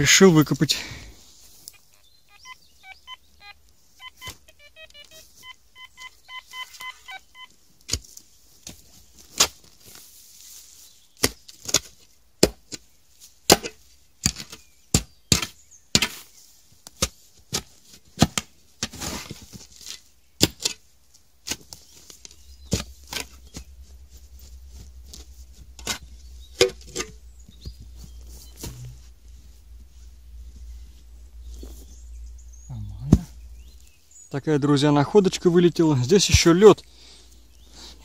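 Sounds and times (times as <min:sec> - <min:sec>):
metal detector beeps: 0:01.6 - 0:07.5
spade digging into ground: 0:21.4 - 0:23.7, 0:24.8 - 0:27.6.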